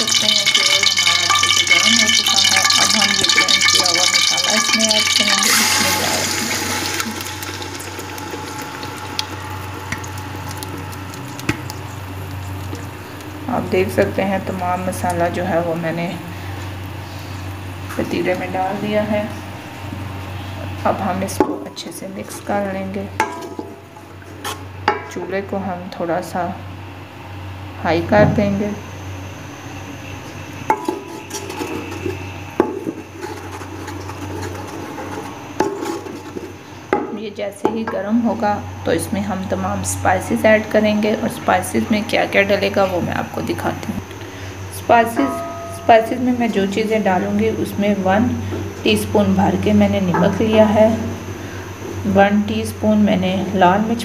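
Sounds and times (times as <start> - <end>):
paste sizzling in hot oil: 0.0 - 14.1, 30.4 - 37.0
steady low hum: 0.0 - 54.0
wooden spoon scraping metal pot: 0.1 - 10.0, 30.7 - 36.6
spoon knocking against pot: 45.2 - 46.0.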